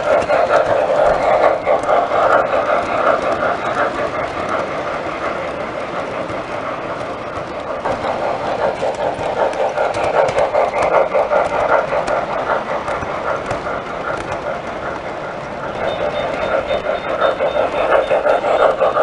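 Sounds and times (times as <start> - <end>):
model train rolling rumble: 0.0 - 19.0
rhythmic wheel clicking: 0.0 - 19.0.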